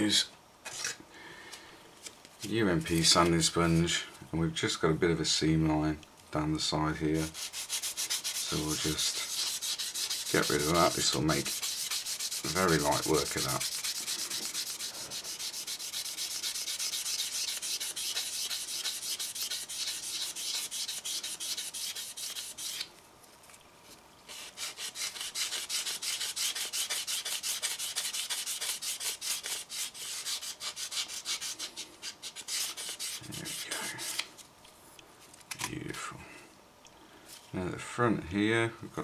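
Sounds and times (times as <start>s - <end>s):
sanding sponge scratching plastic: 7.2s - 22.9s, 24.3s - 34.2s.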